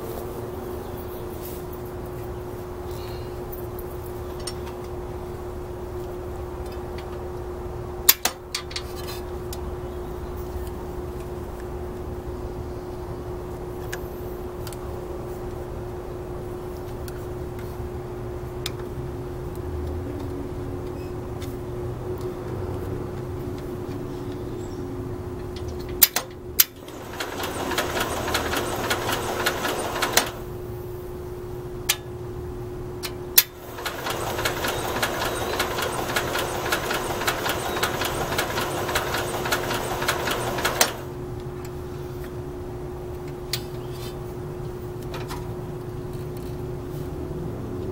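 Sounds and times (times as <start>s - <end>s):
engine cranking without firing: 26.6s - 30.5s, 33.4s - 41.1s.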